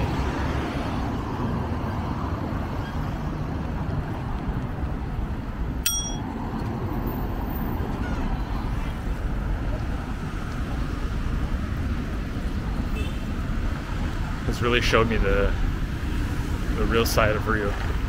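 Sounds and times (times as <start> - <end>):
bicycle bell ding: 5.8 - 6.3
bicycle riding rumble: 7.8 - 18.0.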